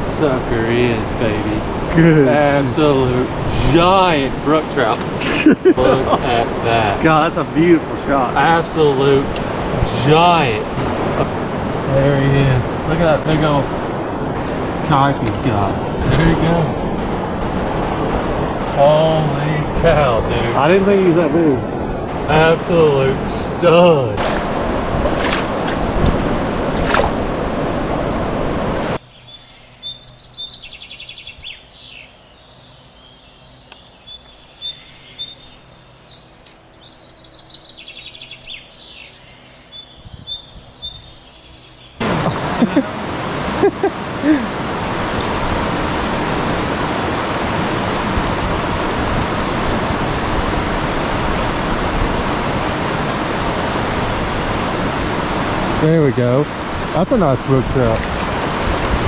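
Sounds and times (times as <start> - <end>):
rushing river water: 0.0 - 32.7, 33.8 - 59.0
songbirds chirping and trilling: 28.4 - 42.8.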